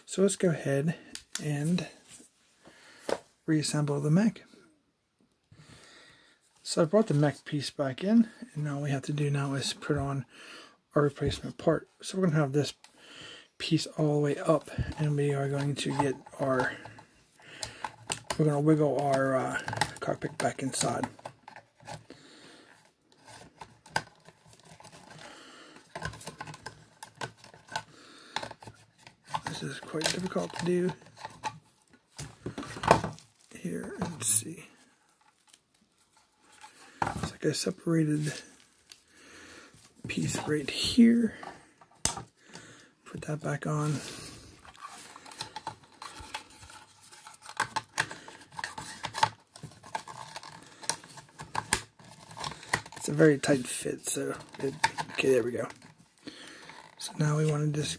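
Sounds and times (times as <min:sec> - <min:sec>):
plastic parts rubbing: 0:13.6 - 0:39.0, 0:43.2 - 0:57.9.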